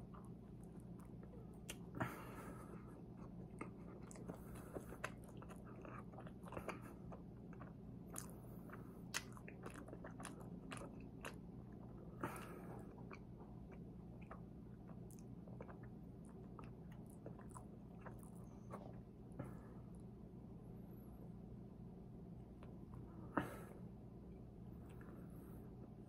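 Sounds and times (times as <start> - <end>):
chewing mouth sounds: 0.0 - 20.1
steady low hum: 0.0 - 26.0.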